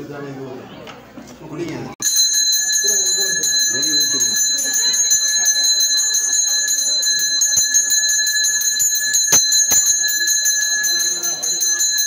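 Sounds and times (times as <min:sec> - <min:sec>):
bell ringing rapidly: 0:02.0 - 0:12.0.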